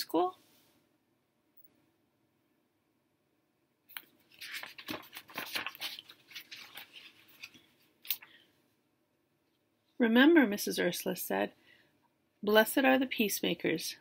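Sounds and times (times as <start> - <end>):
paper pages rustling: 3.9 - 8.3.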